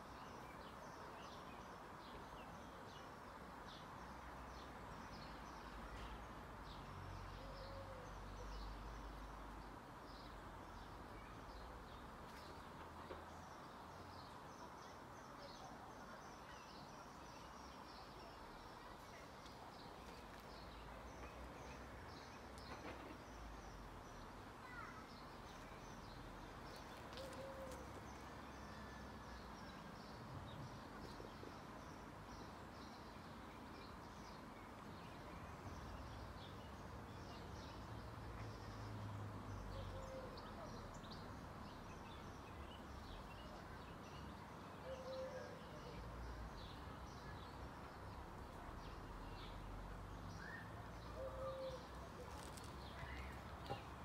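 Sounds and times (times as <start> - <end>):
small birds chirping: 0.0 - 28.4, 29.8 - 54.0
steady background noise: 0.0 - 54.0
low bird coos: 27.1 - 28.0, 44.8 - 46.0, 51.1 - 52.7.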